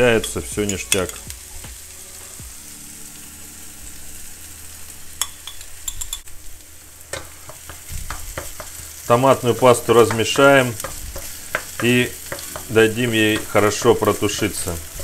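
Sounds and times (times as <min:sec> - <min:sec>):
food sizzling in a pan: 0:00.0 - 0:15.0
metal spoon clicking on glass jar: 0:05.2 - 0:06.2.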